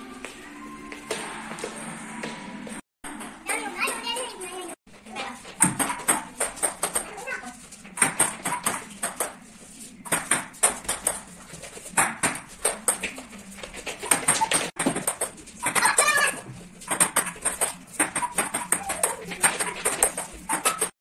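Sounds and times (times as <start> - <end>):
table tennis ball hits: 5.6 - 7.2, 8.0 - 9.4, 10.0 - 11.3, 12.0 - 13.2, 14.1 - 20.9.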